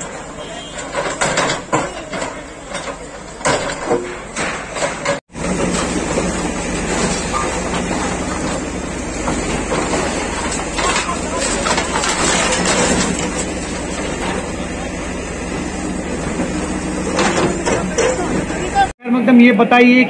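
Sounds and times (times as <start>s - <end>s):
diesel engine running: 0.0s - 19.0s
masonry knocking and crashing: 0.8s - 14.7s.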